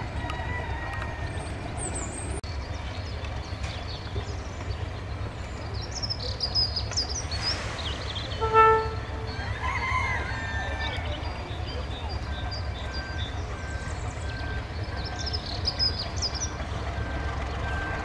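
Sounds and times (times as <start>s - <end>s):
birds chirping: 0.0s - 18.0s
diesel locomotive idling: 0.0s - 18.0s
locomotive horn toot: 8.2s - 9.9s.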